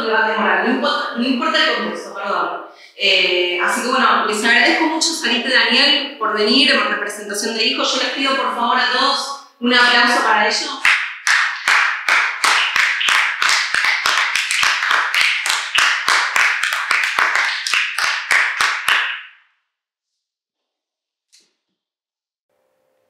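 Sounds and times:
group of people applauding: 0:10.8 - 0:19.2.

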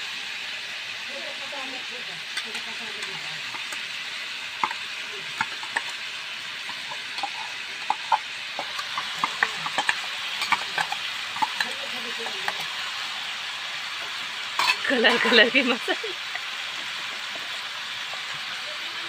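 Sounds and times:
vegetables sizzling in oil: 0:00.0 - 0:19.0
metal spoon scraping steel pan: 0:06.6 - 0:12.6, 0:14.6 - 0:15.5.

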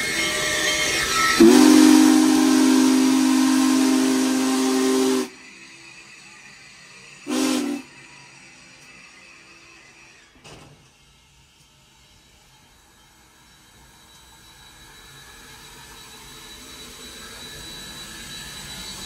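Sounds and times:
steam locomotive whistle: 0:00.0 - 0:05.4, 0:07.2 - 0:08.0
steam hissing: 0:00.0 - 0:10.2.

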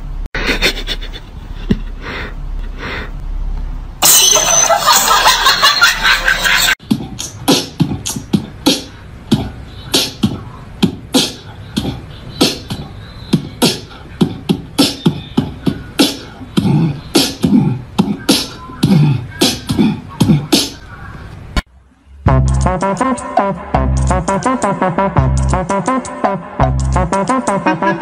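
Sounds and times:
beatboxing: 0:06.8 - 0:21.1, 0:22.3 - 0:28.0.

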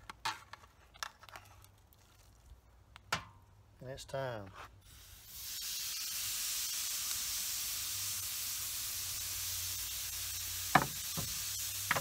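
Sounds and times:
steak sizzling on grill: 0:04.9 - 0:12.0.

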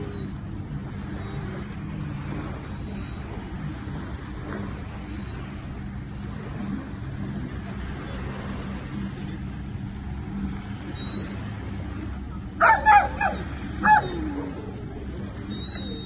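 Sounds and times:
dog barking sharply: 0:12.6 - 0:14.1.

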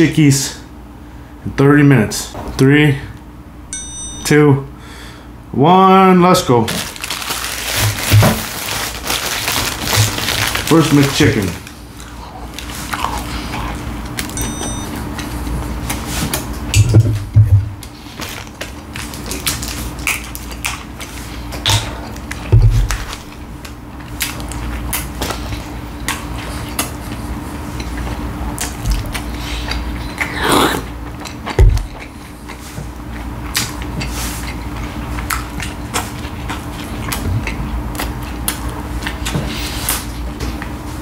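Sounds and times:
steady low hum: 0:00.0 - 0:41.0
person chewing and biting: 0:11.6 - 0:16.7, 0:17.8 - 0:40.7.

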